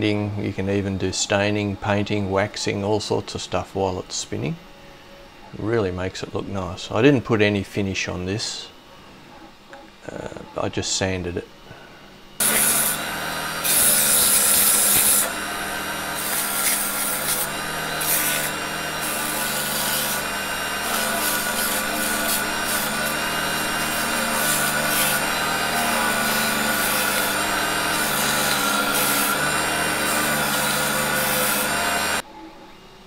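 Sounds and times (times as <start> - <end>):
electric motor humming: 12.2 - 32.2
sandpaper rasping on spinning wood: 12.4 - 32.2.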